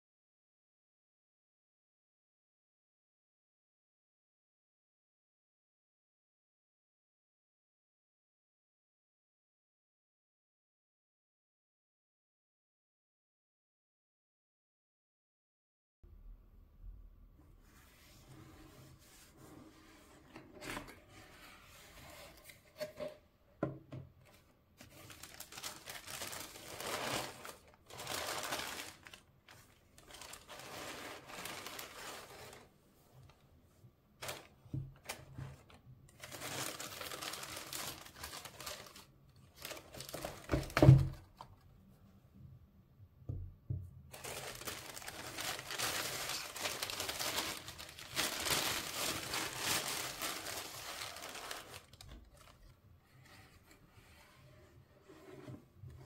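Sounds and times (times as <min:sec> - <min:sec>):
paper crinkling and rustling: 0:24.2 - 0:33.4, 0:34.2 - 0:41.5, 0:44.1 - 0:53.5.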